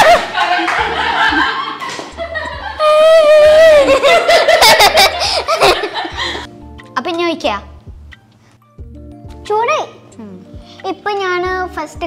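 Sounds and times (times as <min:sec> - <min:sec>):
children laughing: 0:00.0 - 0:06.5.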